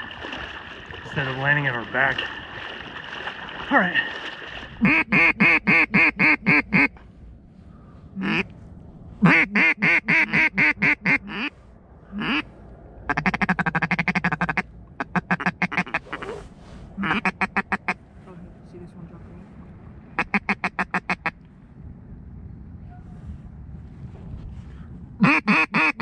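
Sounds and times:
fast chattering duck call: 4.8 - 6.9, 8.2 - 8.4, 9.2 - 11.5, 12.2 - 12.4, 17.0 - 17.8, 20.2 - 21.3, 25.2 - 26.0
duck call quacks: 4.8 - 7.0, 8.2 - 8.5, 9.2 - 11.6, 12.2 - 12.5, 13.1 - 16.2, 17.0 - 18.0, 20.2 - 21.4, 25.2 - 26.0.

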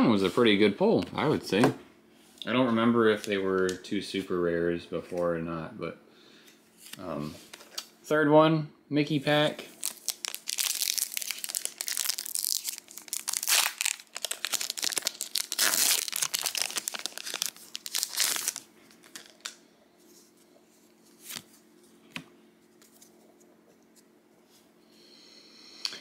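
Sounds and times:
foil wrapper tearing and crinkling: 9.8 - 19.6.

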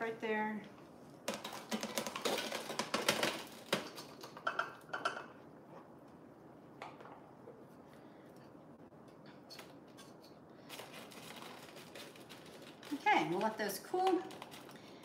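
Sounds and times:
crunchy snack pieces clattering onto pan: 1.3 - 4.7.

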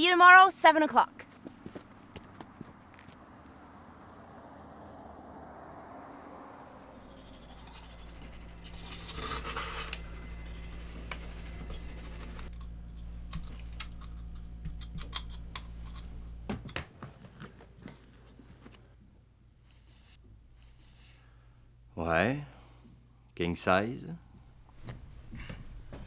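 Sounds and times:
low hum: 1.3 - 16.5
toothbrush scrubbing teeth: 6.9 - 12.5.

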